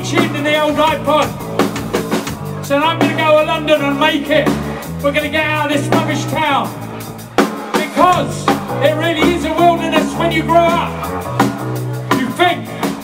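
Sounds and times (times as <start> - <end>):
man singing: 0.0 - 1.3, 7.8 - 11.0
bass guitar: 0.0 - 13.0
drums: 0.0 - 13.0.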